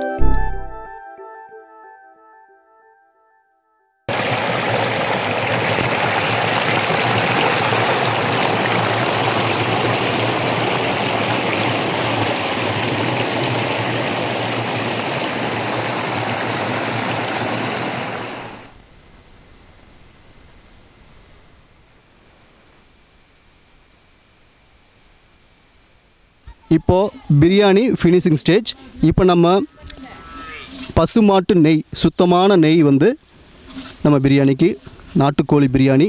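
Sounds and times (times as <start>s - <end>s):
water rushing over rocks: 4.1s - 18.7s.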